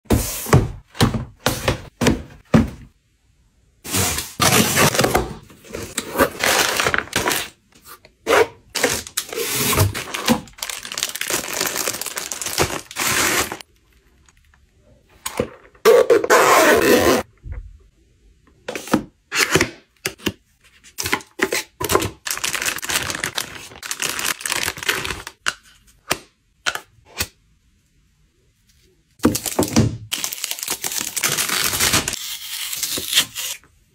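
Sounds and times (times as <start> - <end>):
packaging rustling and tearing: 3.9 - 7.5, 8.8 - 13.7, 21.9 - 25.4, 29.3 - 33.6.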